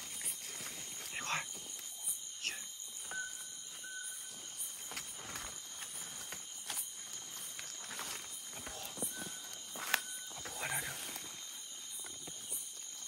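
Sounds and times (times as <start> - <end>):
night insects chirring: 0.0 - 13.0
thin whistle-like tone: 2.4 - 4.5, 9.0 - 10.4
dry leaves rustling underfoot: 4.3 - 13.0.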